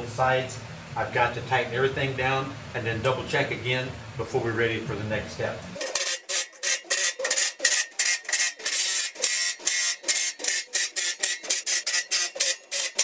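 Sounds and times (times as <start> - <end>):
ratchet wrench rasping: 5.8 - 13.0.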